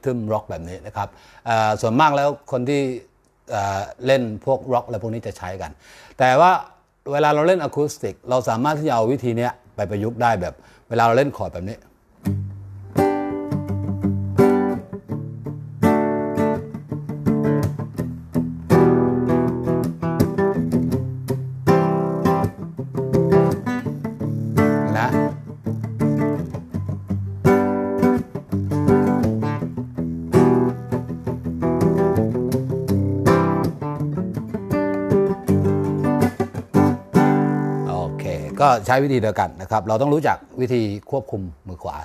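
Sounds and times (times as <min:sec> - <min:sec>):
classical guitar strummed chords: 0:12.2 - 0:39.0.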